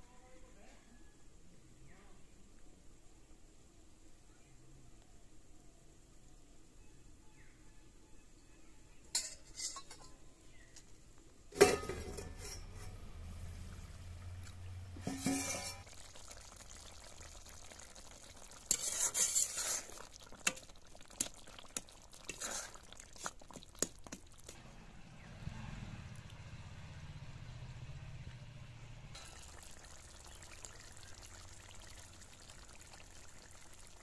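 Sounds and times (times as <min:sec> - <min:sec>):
metal ladle scraping pan: 0:09.2 - 0:10.2, 0:11.6 - 0:13.3, 0:14.9 - 0:15.9, 0:18.6 - 0:20.6.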